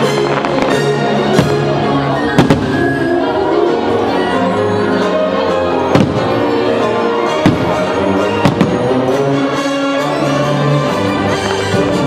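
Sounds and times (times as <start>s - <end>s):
firework shells bursting: 0.0s - 1.8s
music playing: 0.0s - 12.0s.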